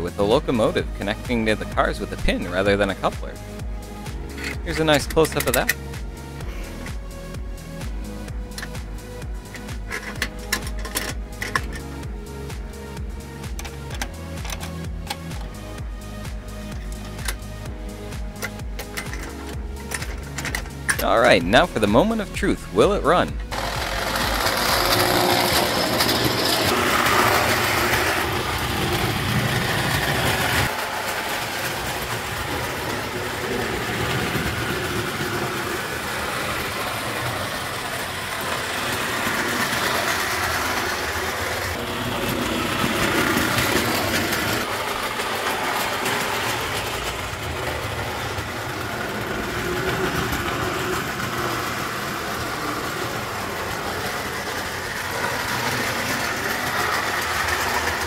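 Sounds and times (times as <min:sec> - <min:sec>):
toy train running on track: 0:04.3 - 0:05.8, 0:09.4 - 0:11.9, 0:13.4 - 0:15.6, 0:23.5 - 0:58.0.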